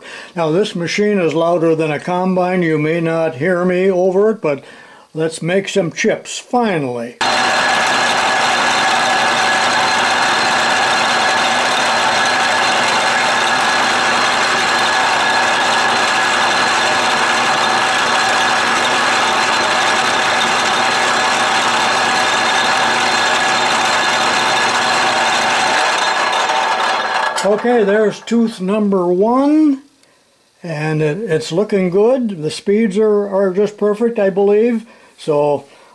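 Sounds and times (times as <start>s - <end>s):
lathe running: 7.2s - 28.6s
steady machine whine: 7.2s - 28.9s.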